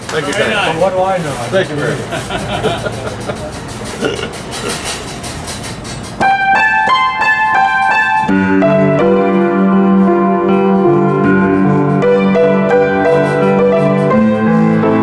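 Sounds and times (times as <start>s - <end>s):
honky-tonk upright piano: 6.2s - 15.0s.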